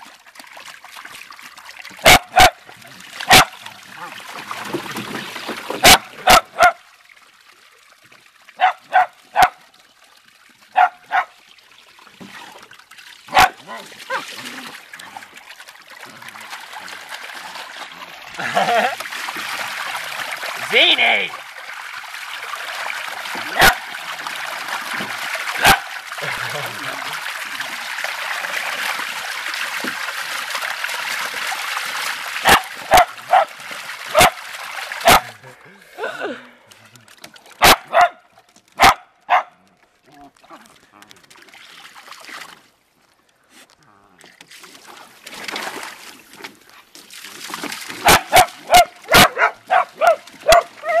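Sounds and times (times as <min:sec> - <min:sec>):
water churning from hose: 0:00.0 - 0:39.0, 0:40.3 - 0:42.8, 0:43.4 - 0:51.0
small dog barking: 0:02.0 - 0:02.6, 0:03.3 - 0:03.5, 0:05.8 - 0:06.8, 0:08.6 - 0:09.6, 0:10.8 - 0:11.3, 0:13.3 - 0:14.3, 0:32.5 - 0:33.5, 0:35.1 - 0:35.3, 0:37.6 - 0:38.2, 0:38.8 - 0:39.5, 0:48.0 - 0:51.0
small dog yapping: 0:48.0 - 0:51.0.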